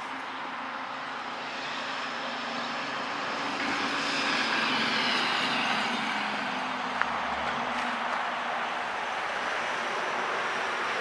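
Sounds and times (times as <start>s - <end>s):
road traffic noise: 0.0s - 11.0s
vehicle passing: 0.0s - 11.0s.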